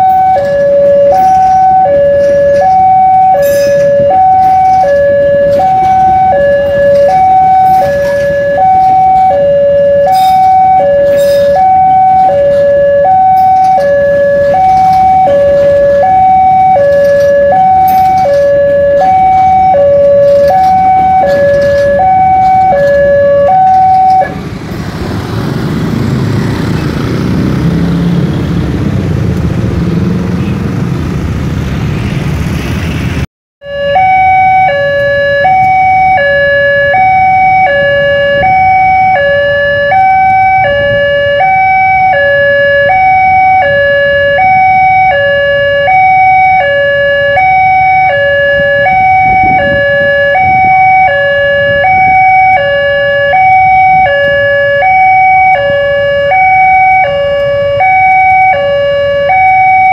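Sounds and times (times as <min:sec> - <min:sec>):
two-tone crossing warning alarm: 0:00.0 - 0:24.8, 0:33.6 - 0:59.9
train rumbling past: 0:00.0 - 0:33.2.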